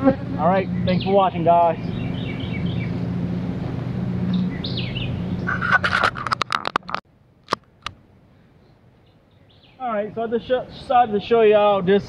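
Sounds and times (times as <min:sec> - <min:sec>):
honeybees buzzing: 0:00.0 - 0:06.2
bird chirping: 0:00.6 - 0:03.2, 0:04.2 - 0:05.9, 0:08.6 - 0:09.8
clicks and knocks: 0:05.5 - 0:08.0.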